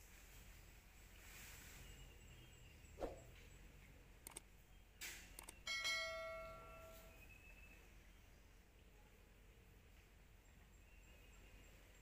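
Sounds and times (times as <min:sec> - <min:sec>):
faint clicks: 0:04.2 - 0:04.5, 0:05.3 - 0:05.6
bell-like metallic ring: 0:05.6 - 0:07.3.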